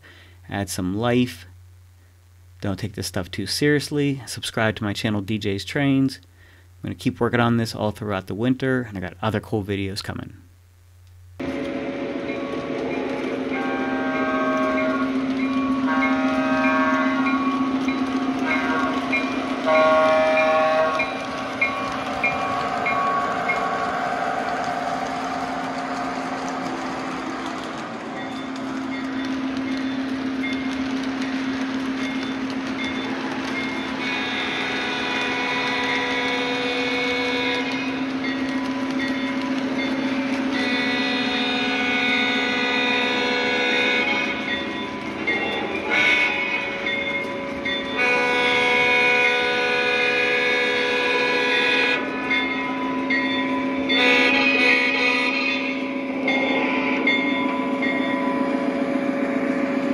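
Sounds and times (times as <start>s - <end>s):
train engine drone: 0.0s - 7.0s, 10.5s - 59.9s
locomotive horn blasts: 13.4s - 23.8s, 33.9s - 38.2s, 40.4s - 44.5s, 45.8s - 46.9s, 48.0s - 52.2s, 53.9s - 57.1s.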